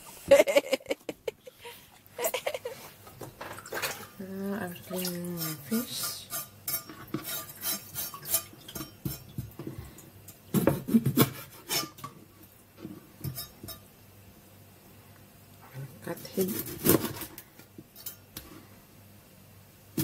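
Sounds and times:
knife scraping fish on plastic board: 7.1s - 8.5s, 10.6s - 12.0s.

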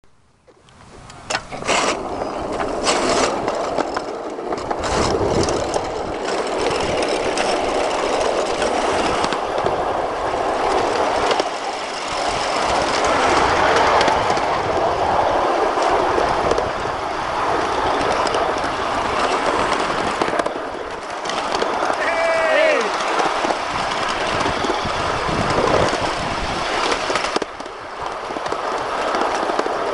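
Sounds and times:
wheels rolling on rail: 0.2s - 29.9s
clicks over rail joints: 0.5s - 29.9s.

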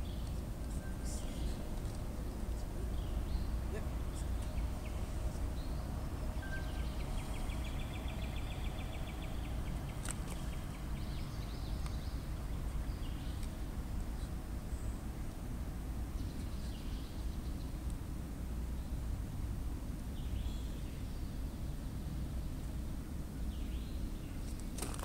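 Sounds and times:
birds trilling and chirping: 0.0s - 15.1s.

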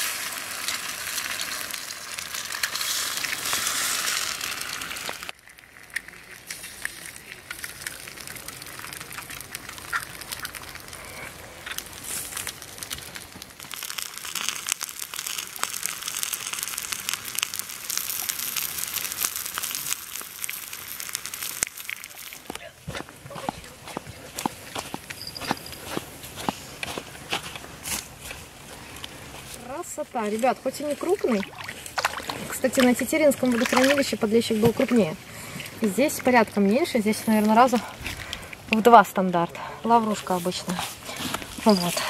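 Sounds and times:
eggs sizzling in a frying pan: 0.0s - 22.7s.

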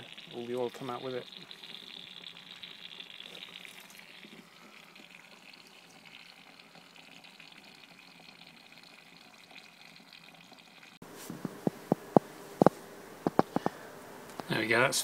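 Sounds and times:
hissing trickle of oil: 0.0s - 11.0s.

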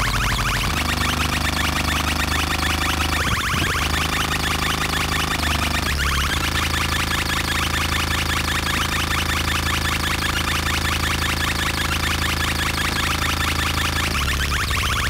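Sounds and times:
buzzing rising electronic chirps: 0.0s - 15.0s
low synthesizer drone: 0.0s - 15.0s.

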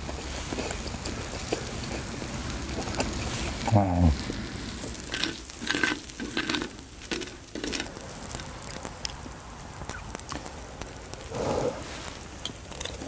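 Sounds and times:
muffled rustle: 8.0s - 13.0s.

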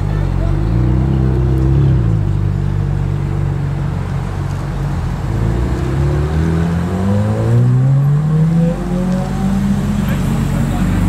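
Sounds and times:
car engines pulling away: 0.0s - 11.0s
sports car engine revving: 4.9s - 11.0s.

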